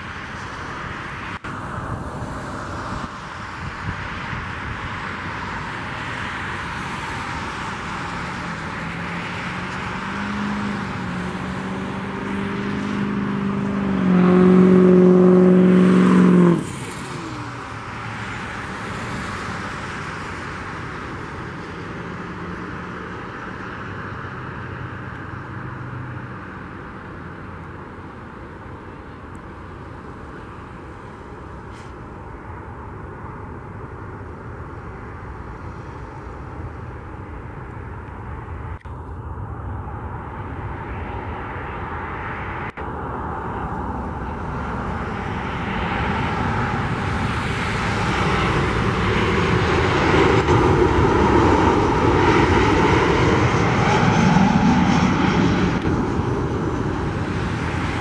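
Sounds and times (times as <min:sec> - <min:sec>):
jet engine rumble and hiss: 0:00.0 - 0:14.0, 0:16.5 - 0:58.0
loud pitched engine sound: 0:06.5 - 0:27.5.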